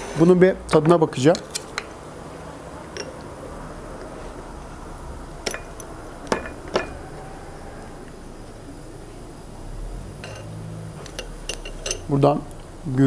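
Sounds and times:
porcelain and cutlery clinking: 2.9s - 3.2s, 10.2s - 12.1s.

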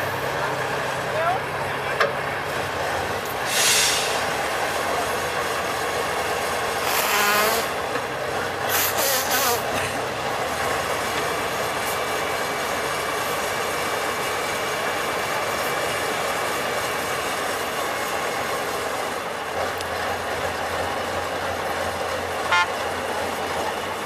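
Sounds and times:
diesel truck engine under load: 0.0s - 24.0s
short sharp hisses: 3.4s - 4.2s.

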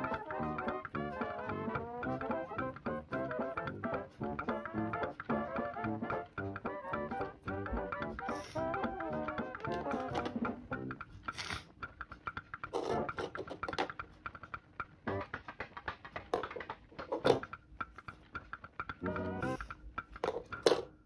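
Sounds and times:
jazzy music with brass: 0.0s - 10.8s, 15.1s - 15.3s, 19.0s - 19.6s
busy percussive beat: 0.0s - 21.0s.

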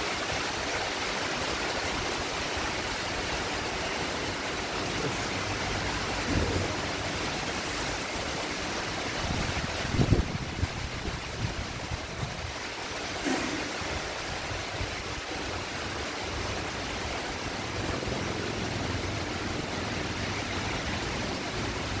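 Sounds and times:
heavy rain falling: 0.0s - 22.0s.

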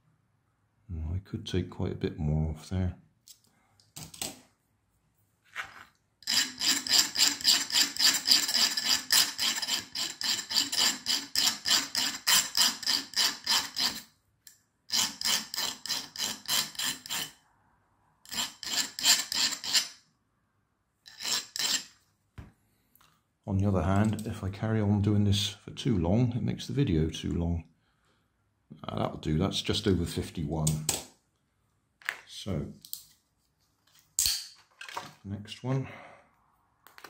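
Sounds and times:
file rasping on metal: 6.2s - 14.1s, 14.9s - 17.4s, 18.3s - 20.0s, 21.1s - 22.0s.

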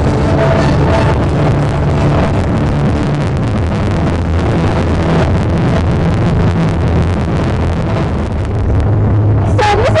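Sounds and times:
bass-heavy music over loudspeakers: 0.0s - 10.0s.

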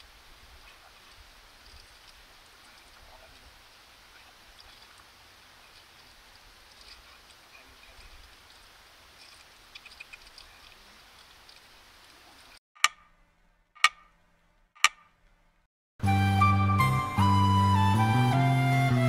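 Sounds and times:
outdoor night ambience: 0.0s - 15.7s
clock ticks: 12.8s - 13.2s, 13.8s - 14.1s, 14.8s - 15.1s
background music: 16.0s - 19.0s.

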